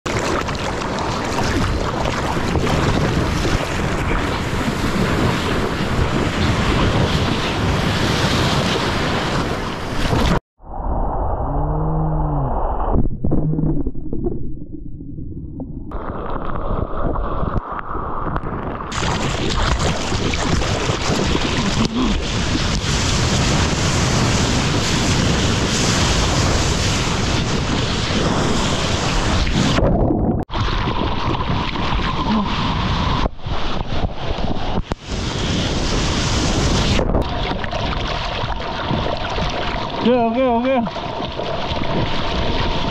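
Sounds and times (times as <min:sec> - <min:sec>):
wind buffeting microphone: 0:01.0 - 0:10.4, 0:16.6 - 0:39.8
ocean surf breaking: 0:02.8 - 0:10.4
low pitched rising and falling tone: 0:10.6 - 0:17.4.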